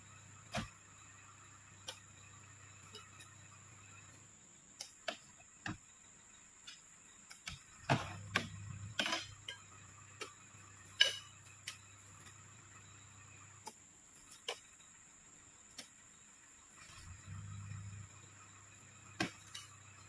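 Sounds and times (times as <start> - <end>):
low hum: 7.7 - 13.6, 16.8 - 20.0.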